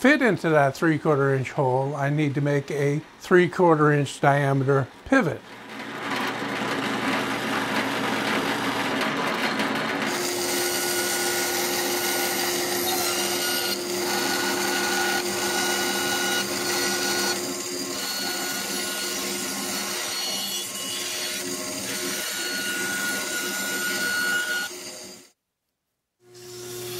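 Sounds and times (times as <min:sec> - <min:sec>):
drill press boring into plywood: 0:05.8 - 0:25.3
small saw humming: 0:10.1 - 0:25.4, 0:26.2 - 0:26.9.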